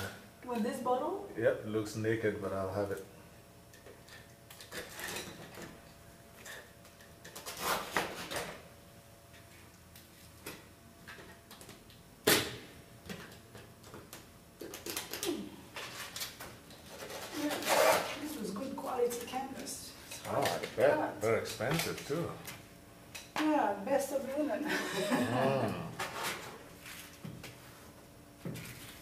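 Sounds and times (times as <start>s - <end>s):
blade cutting canvas: 16.9s - 18.2s.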